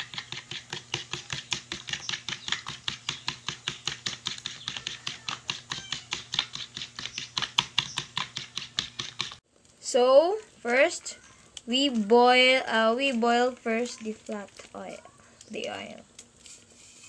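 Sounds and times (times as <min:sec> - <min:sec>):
fork whisking eggs in plate: 0:00.0 - 0:09.4.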